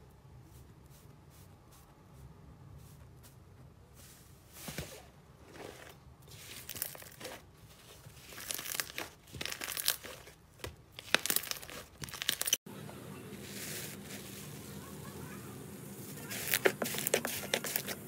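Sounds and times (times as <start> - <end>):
slime crackling and popping: 6.3 - 7.4, 8.1 - 12.6.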